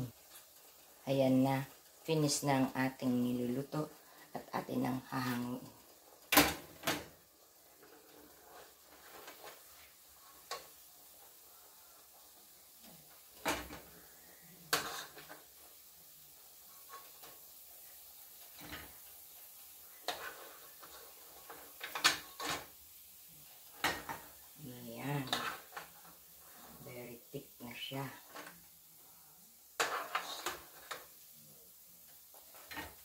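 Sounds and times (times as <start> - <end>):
metal spoon scraping a pot: 14.7 - 15.4, 20.0 - 22.7, 25.2 - 26.8, 29.8 - 31.0.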